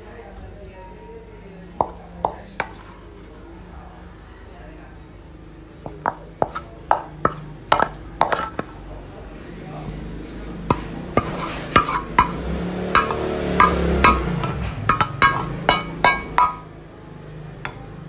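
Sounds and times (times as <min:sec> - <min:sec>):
wooden spatula clacking on pan: 0:05.9 - 0:08.8, 0:10.7 - 0:16.7.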